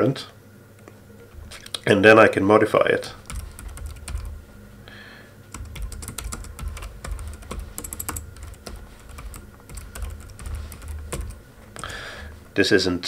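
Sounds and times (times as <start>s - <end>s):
typing on computer keyboard: 3.2s - 4.4s, 5.5s - 11.4s.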